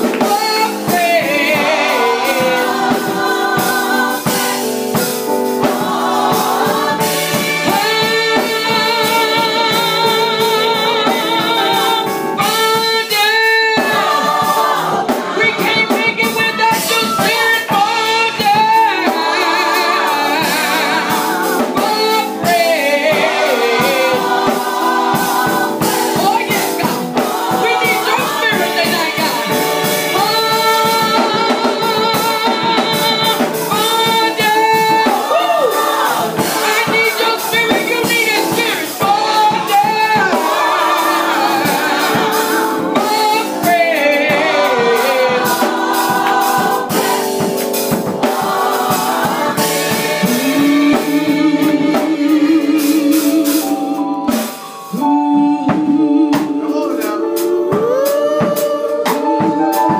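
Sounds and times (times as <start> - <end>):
drums: 0.0 - 59.9
group of singers: 0.0 - 59.9
woman singing into microphone: 30.2 - 35.7, 55.0 - 59.9.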